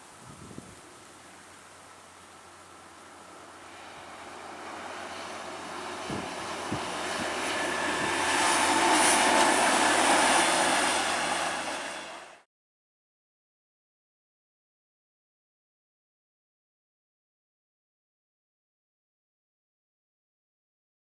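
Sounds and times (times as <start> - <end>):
rail vehicle wheels rumbling: 1.2 - 12.5.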